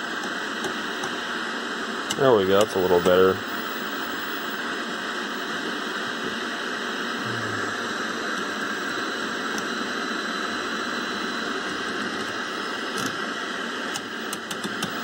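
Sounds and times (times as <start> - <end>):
tv static hiss: 0.0 - 15.0.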